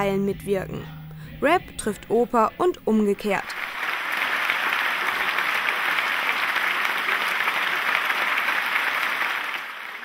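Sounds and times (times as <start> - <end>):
audience applauding: 3.5 - 10.0.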